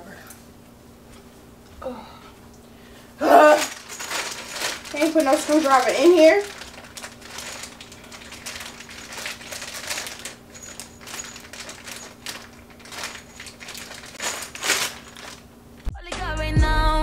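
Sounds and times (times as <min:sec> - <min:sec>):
plastic bag crinkling: 0:03.2 - 0:15.5
small parts rattling: 0:03.2 - 0:15.5.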